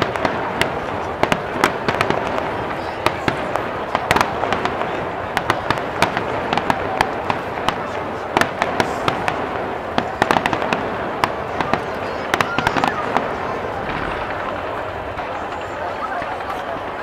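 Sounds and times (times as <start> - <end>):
fireworks bursting: 0.0 - 17.0.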